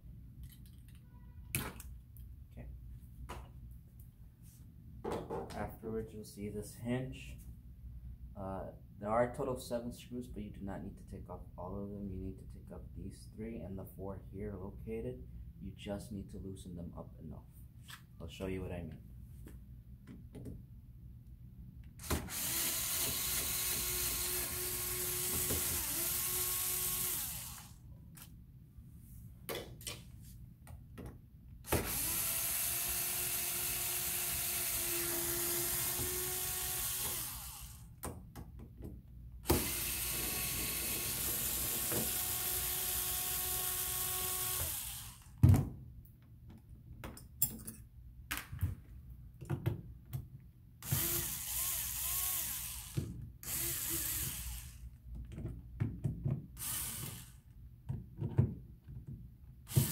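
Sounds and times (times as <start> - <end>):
cordless drill running: 22.0 - 27.8, 31.7 - 37.9, 39.4 - 45.4, 50.8 - 54.8, 56.6 - 57.4, 59.7 - 59.9.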